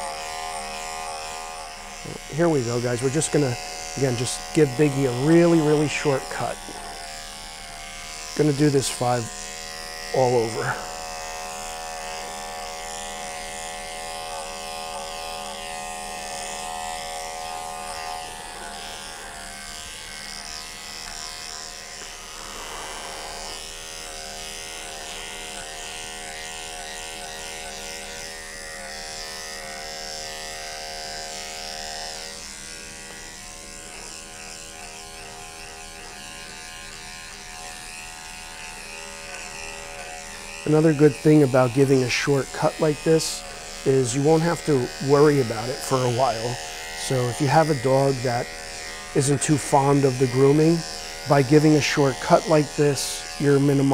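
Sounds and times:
electric clipper buzzing: 0.0 - 53.9.

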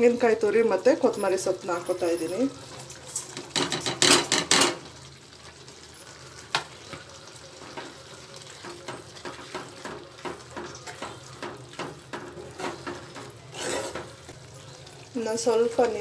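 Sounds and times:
metal spoon stirring in a pan: 5.6 - 16.0
scraping food off a plate: 13.5 - 14.1.

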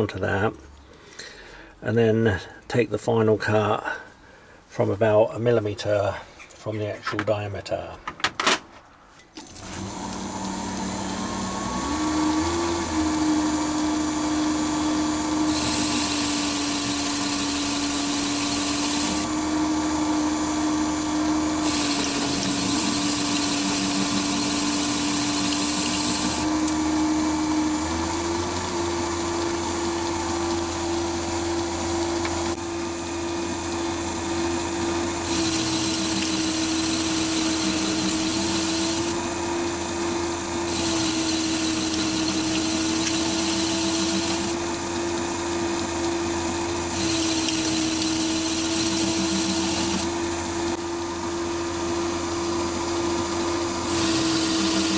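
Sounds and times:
lathe motor hum and whine: 9.4 - 54.9
tool cutting metal hiss: 15.5 - 19.3, 21.6 - 26.5, 35.2 - 39.2, 40.7 - 44.6, 46.9 - 50.1, 53.9 - 54.9.

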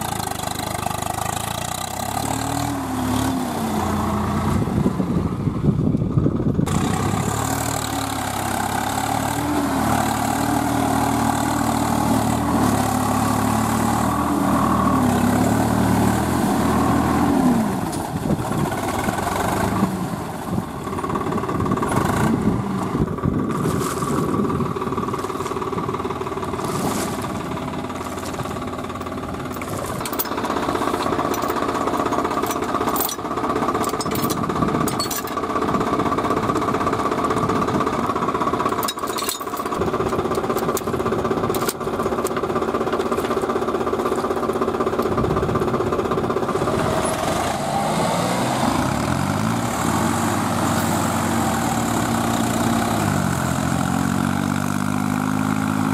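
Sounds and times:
tractor diesel engines running: 0.0 - 55.9
engine revving up: 1.6 - 4.7, 6.7 - 17.9, 21.8 - 22.7, 46.5 - 55.9
tow chain metal clanks: 28.9 - 35.5, 38.7 - 42.4.

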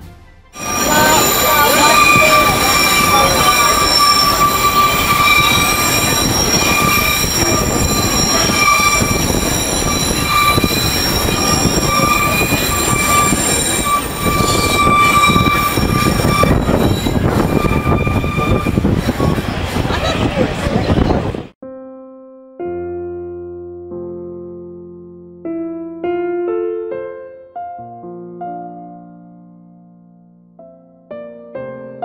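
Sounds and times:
rumble of train cars: 0.0 - 21.6
train wheels squealing on rails: 0.6 - 21.4.

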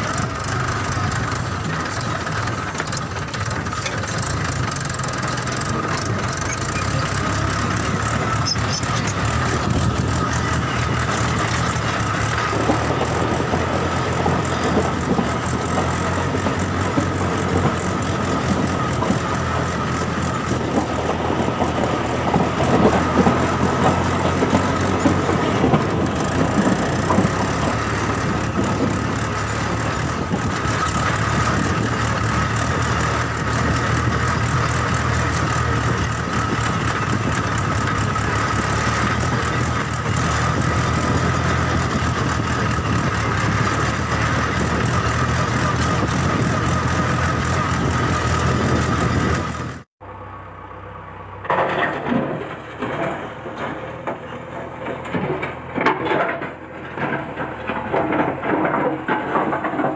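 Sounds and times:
gravel clattering: 0.0 - 49.8, 51.4 - 59.9.

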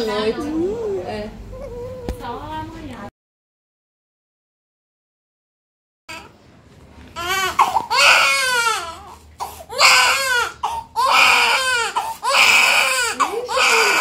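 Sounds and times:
baby crying: 6.1 - 6.3, 7.2 - 14.0
baby breathing: 11.9 - 12.3.

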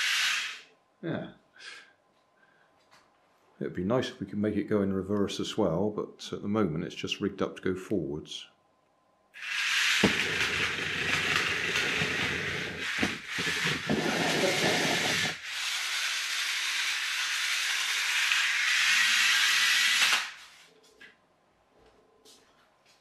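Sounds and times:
toy car motor whirring: 0.0 - 0.7, 9.4 - 20.5.

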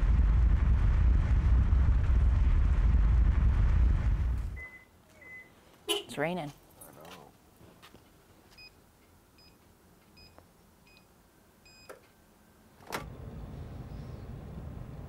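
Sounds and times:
faint electronic beeps: 4.6 - 5.6.

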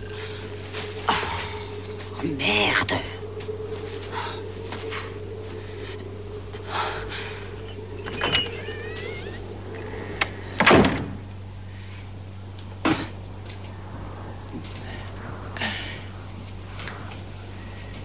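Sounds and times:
steady low hum: 0.0 - 18.0
door creaking: 8.0 - 9.4.

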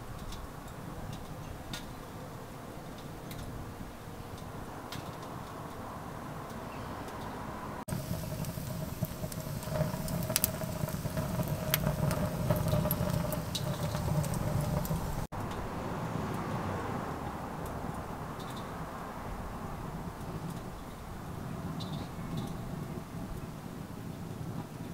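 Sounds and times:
low rush of fire: 7.6 - 24.9
wood fire crackling and popping: 7.9 - 15.3.

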